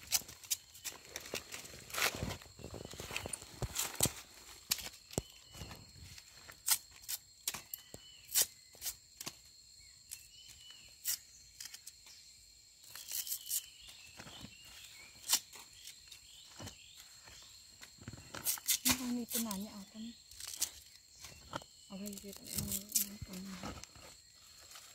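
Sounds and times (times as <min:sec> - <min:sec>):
machete cutting bamboo shoots: 0:06.6 - 0:09.4, 0:18.4 - 0:19.6.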